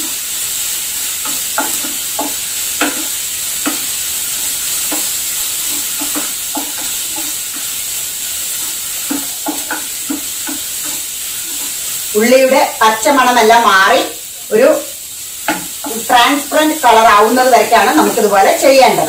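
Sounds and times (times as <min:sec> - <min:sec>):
wooden spatula scraping a pan: 0:00.0 - 0:13.8
onions sizzling in oil: 0:00.0 - 0:19.0.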